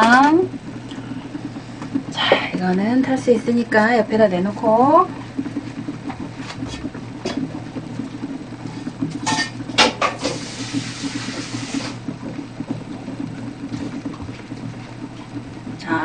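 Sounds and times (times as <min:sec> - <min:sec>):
low hum: 0:00.0 - 0:16.0
tap running: 0:00.0 - 0:16.0.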